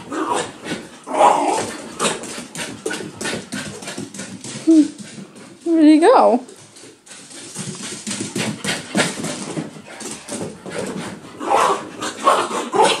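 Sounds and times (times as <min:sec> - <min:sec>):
dogs scuffling on cushions: 0:06.5 - 0:13.0.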